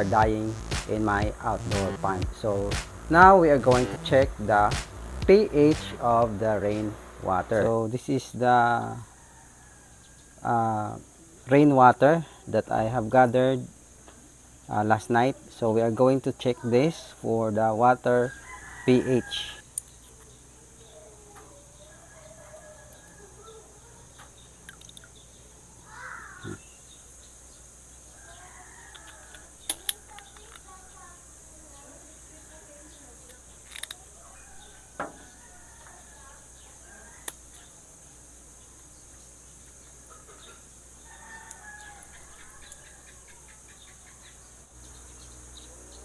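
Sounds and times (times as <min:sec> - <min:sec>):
rooster crowing: 0:08.8 - 0:10.4, 0:18.2 - 0:19.6, 0:21.8 - 0:24.0, 0:28.1 - 0:29.6, 0:34.0 - 0:38.2, 0:41.0 - 0:43.7
faint chickens clucking: 0:39.7 - 0:46.0.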